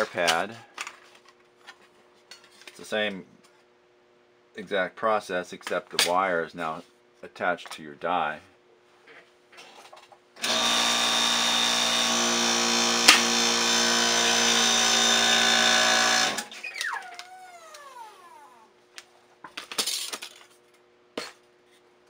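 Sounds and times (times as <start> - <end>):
hydraulic press pump running: 10.4 - 16.6
motor winding down whine: 10.4 - 18.4
die shearing metal snap: 13.0 - 13.4.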